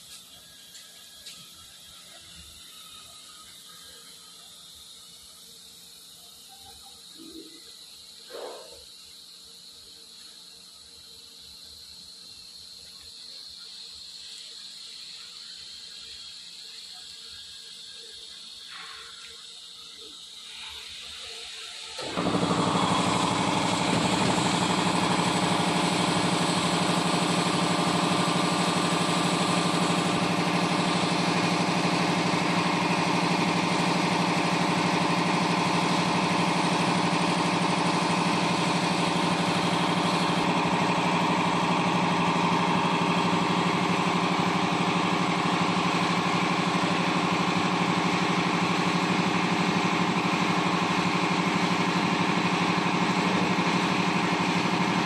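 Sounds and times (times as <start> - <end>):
router spindle whine and cutting: 22.0 - 55.0.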